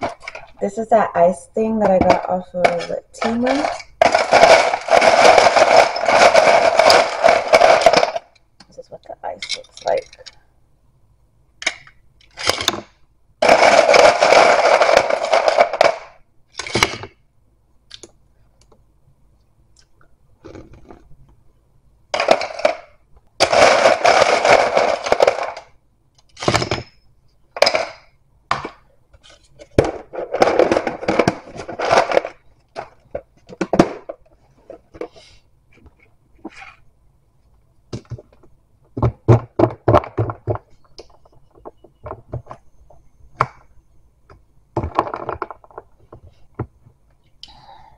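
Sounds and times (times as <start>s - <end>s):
ice rattling in plastic box: 2.0s - 8.3s, 13.4s - 16.9s, 22.2s - 25.7s, 29.8s - 32.9s.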